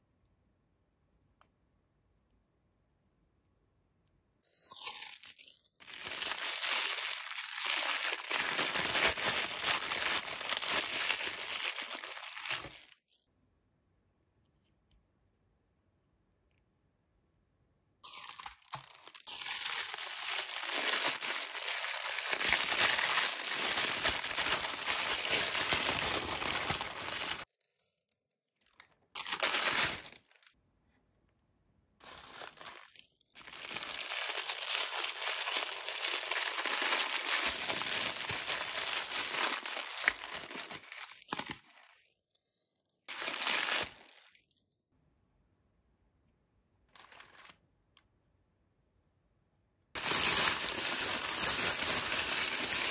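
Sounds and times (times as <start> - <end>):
plastic packaging crinkling: 4.4 - 13.1, 18.0 - 30.6, 32.0 - 42.2, 43.0 - 44.6, 46.9 - 47.6, 50.0 - 52.9.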